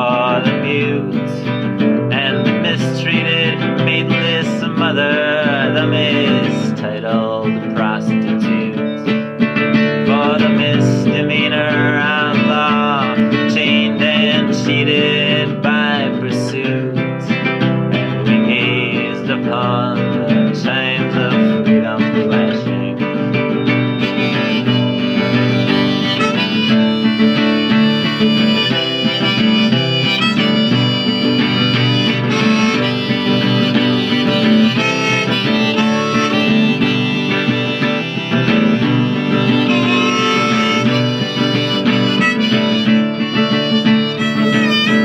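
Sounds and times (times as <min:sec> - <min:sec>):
acoustic guitar strumming: 0:00.0 - 0:45.0
harmonica melody: 0:00.0 - 0:45.0.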